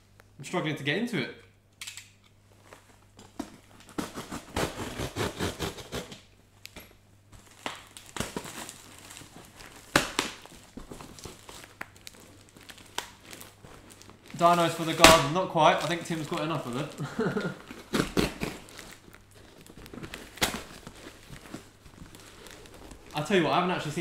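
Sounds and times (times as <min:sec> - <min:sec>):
cardboard and tape tearing: 0:03.7 - 0:06.3, 0:07.4 - 0:24.0.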